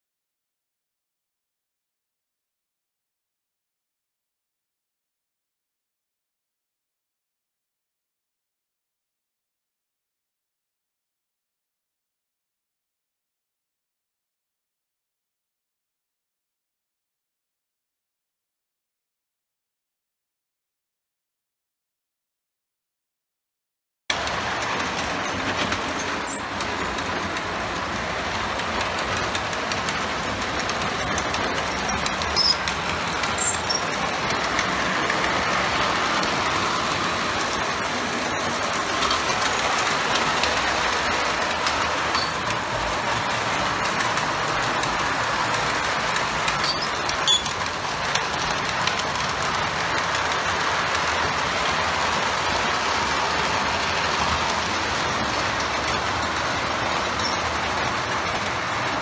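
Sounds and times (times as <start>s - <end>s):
model train wheels rumbling on rail: 24.1s - 59.0s.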